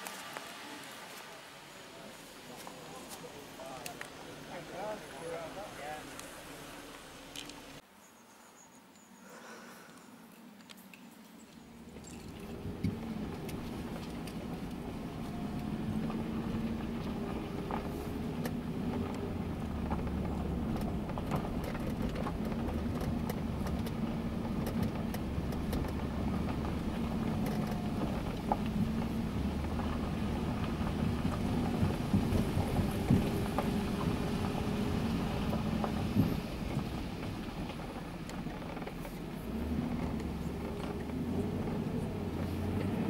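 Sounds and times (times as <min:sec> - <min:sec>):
car engine and road noise: 0:00.0 - 0:43.0
small clicks and rattles: 0:11.9 - 0:41.9.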